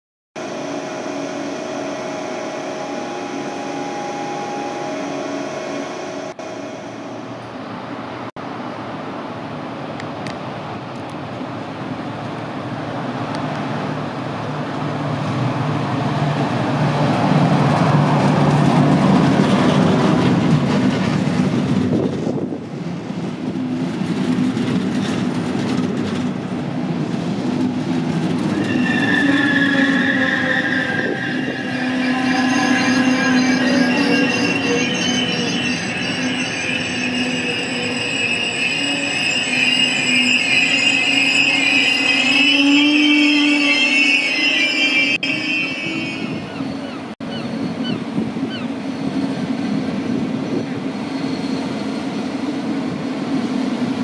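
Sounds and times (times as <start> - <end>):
high train squeal: 0.4 - 7.8, 24.0 - 54.0
electric train passing: 0.4 - 54.0.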